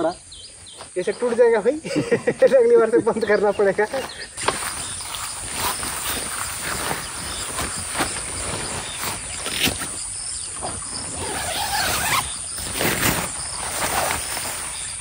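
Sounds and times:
insects chirping: 0:00.0 - 0:15.0.

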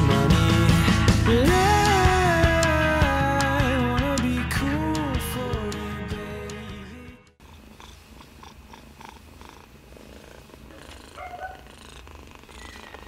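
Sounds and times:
guitar song: 0:00.0 - 0:07.4
kitten purring: 0:07.4 - 0:13.0.

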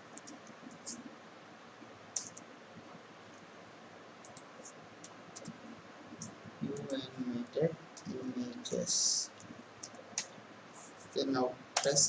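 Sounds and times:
faint steady hiss: 0:00.0 - 0:12.0
keyboard keys clicking: 0:09.4 - 0:10.3.

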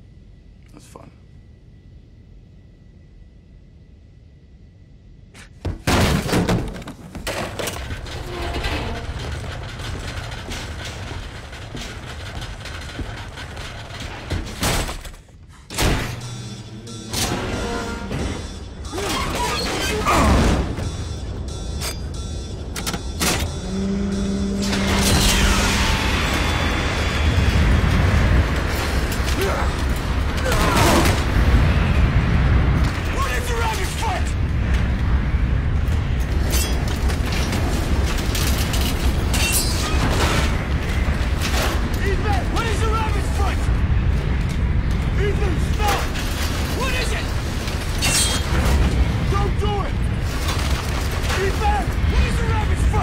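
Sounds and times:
low hum: 0:00.0 - 0:42.6
thuds and slams: 0:05.5 - 0:16.4
deep rumble: 0:07.4 - 0:19.0, 0:20.0 - 0:39.3, 0:39.9 - 0:53.0
rushing noise: 0:23.5 - 0:39.3.

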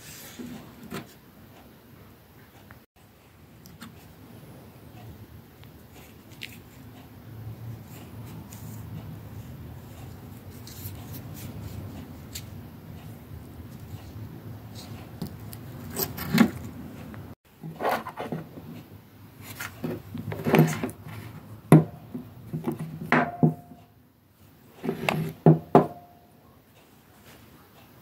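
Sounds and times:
rubbing and scraping: 0:13.7 - 0:16.9, 0:17.6 - 0:18.8, 0:19.4 - 0:21.6, 0:24.8 - 0:25.4.

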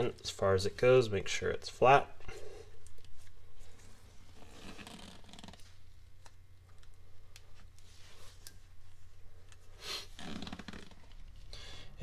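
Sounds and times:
soft rustle: 0:07.5 - 0:11.5.

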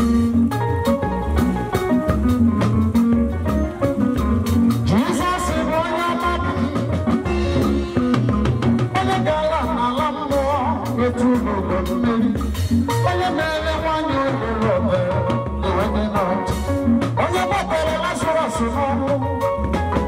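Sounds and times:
live gospel band playing: 0:00.0 - 0:20.0
man singing into a microphone: 0:04.8 - 0:20.0.

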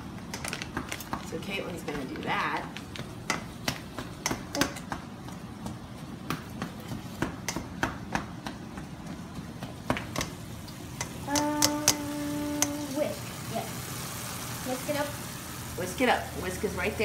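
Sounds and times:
meat sizzling in a skillet: 0:10.2 - 0:17.0.

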